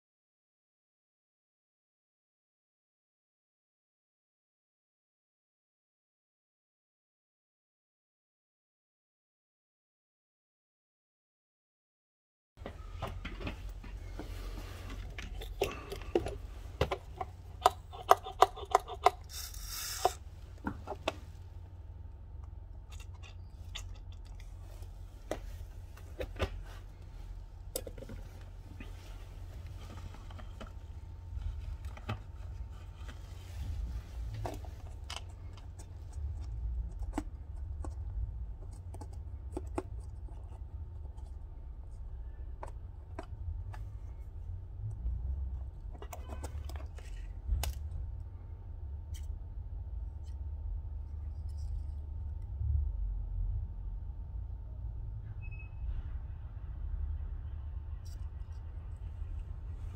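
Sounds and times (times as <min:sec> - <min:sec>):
steady low hum: 0:12.6 - 0:59.9
small tools clicking and tapping: 0:15.1 - 0:21.2.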